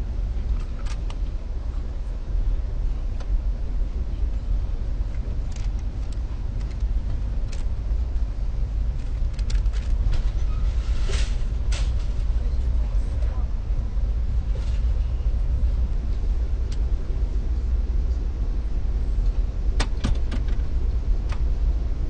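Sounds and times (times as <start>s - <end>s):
train low rumble: 0.0s - 22.0s
sharp clicks and rattles: 5.1s - 7.8s, 8.9s - 10.3s.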